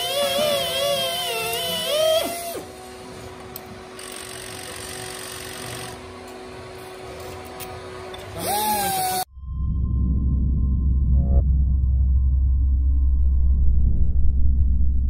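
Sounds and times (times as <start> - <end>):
machinery hum: 9.2 - 15.0
low rumble: 9.3 - 15.0.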